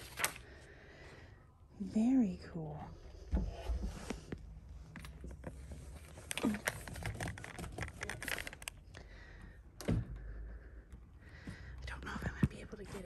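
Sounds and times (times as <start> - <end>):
paper magazines rustling: 0.0 - 0.6, 5.3 - 8.9.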